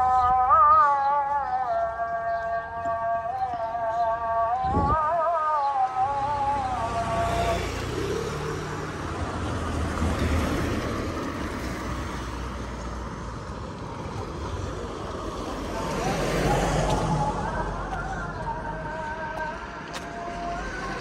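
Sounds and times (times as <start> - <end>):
cars driving past: 5.4 - 21.0.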